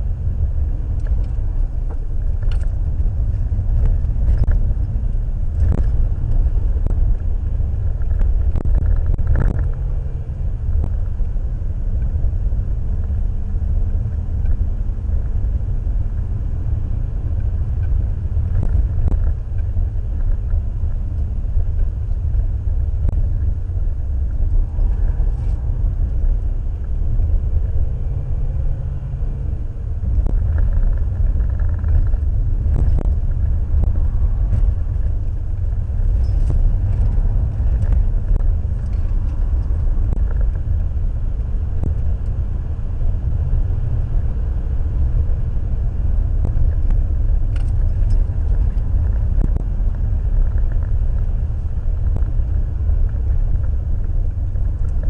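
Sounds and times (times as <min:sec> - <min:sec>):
car engine and tyres rumbling: 0:00.0 - 0:55.0.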